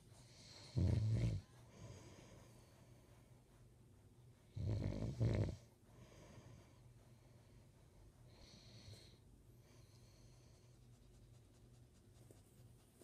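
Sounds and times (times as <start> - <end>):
quiet breathing: 0.0 - 13.0
man snoring: 0.6 - 1.4, 4.6 - 5.6.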